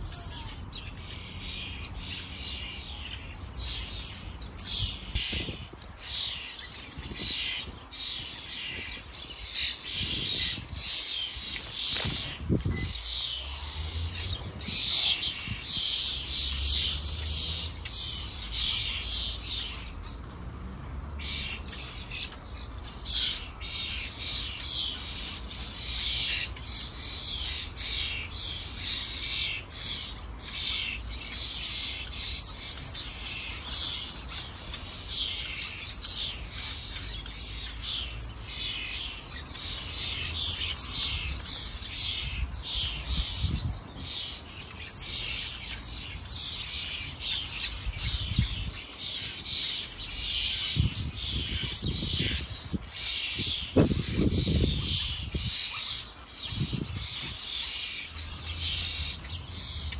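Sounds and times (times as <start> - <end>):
sparrows chirping: 0.0 - 59.9
wind rumble on microphone: 4.4 - 6.1, 6.7 - 17.8, 40.3 - 44.2, 47.8 - 48.9, 50.5 - 57.5.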